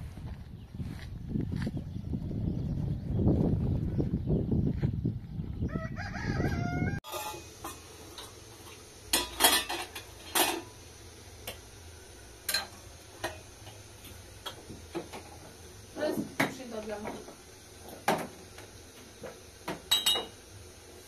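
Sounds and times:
rooster crowing: 5.6s - 7.0s
glasses clinking on a tray: 19.9s - 20.4s.

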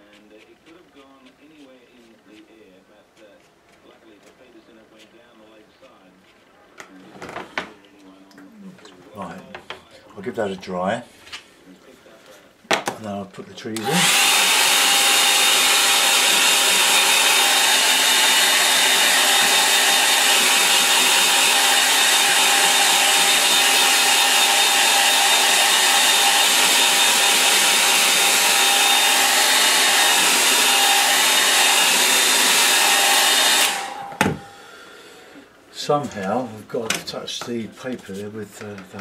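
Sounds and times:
hair dryer blowing: 13.8s - 36.6s.

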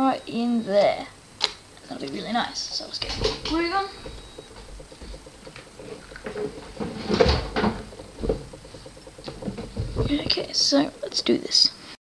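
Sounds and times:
objects knocking and clattering: 2.8s - 11.3s.

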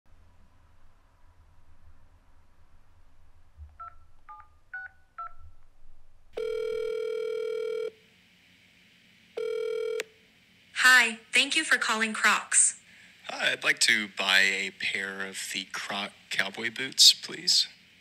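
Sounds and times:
phone ringing tone: 6.4s - 8.0s, 9.4s - 10.1s.

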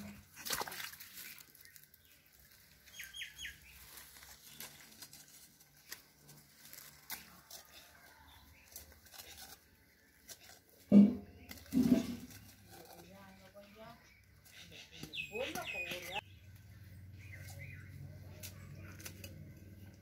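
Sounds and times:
hoe scraping in muddy soil: 3.5s - 13.7s.

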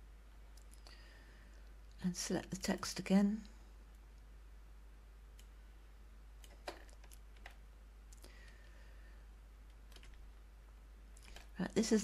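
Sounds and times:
mouse and keyboard clicks: 9.7s - 10.2s.

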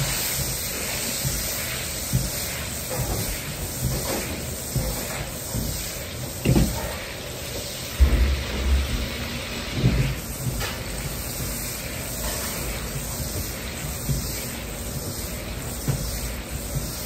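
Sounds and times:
butter sizzling in a wok: 0.0s - 17.0s
low thumps: 8.0s - 9.4s.

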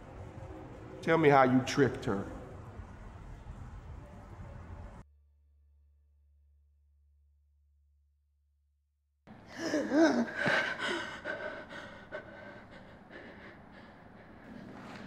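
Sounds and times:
woman gasping: 9.5s - 14.4s
woman breathing heavily: 9.5s - 15.0s.

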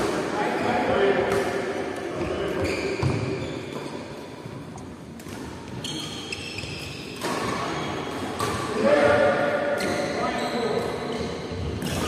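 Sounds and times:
shoes squeaking on floor: 2.2s - 4.6s, 5.6s - 8.2s, 9.8s - 12.0s.

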